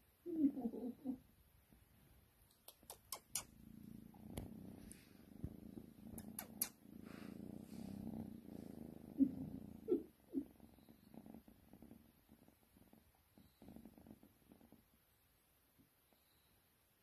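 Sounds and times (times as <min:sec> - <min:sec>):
kitten purring: 0:00.2 - 0:15.2
faint clicks: 0:02.5 - 0:03.6, 0:06.1 - 0:06.8.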